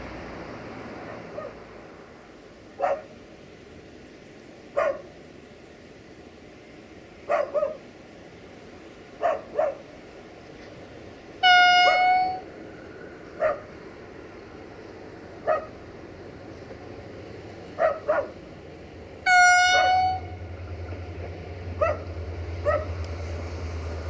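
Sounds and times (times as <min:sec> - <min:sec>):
low engine rumble: 0:00.0 - 0:24.0
dog barking: 0:01.1 - 0:01.6, 0:02.8 - 0:03.1, 0:04.8 - 0:05.1, 0:07.3 - 0:07.8, 0:09.2 - 0:09.9, 0:13.4 - 0:13.7, 0:15.4 - 0:15.8, 0:17.8 - 0:18.4, 0:21.8 - 0:22.0, 0:22.6 - 0:22.9
locomotive horn blasts: 0:11.4 - 0:12.5, 0:19.2 - 0:20.4.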